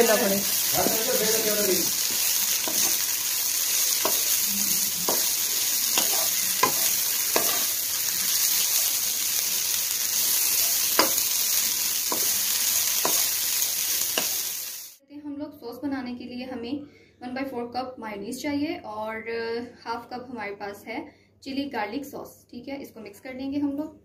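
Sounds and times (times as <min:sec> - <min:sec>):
food sizzling in a wok: 0:00.0 - 0:15.0.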